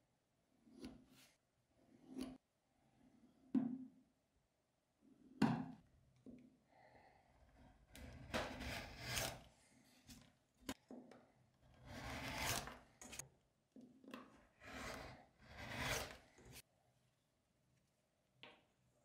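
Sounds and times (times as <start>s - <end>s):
rotary cutter cutting leather: 7.9s - 9.4s, 11.7s - 13.2s, 14.6s - 16.6s.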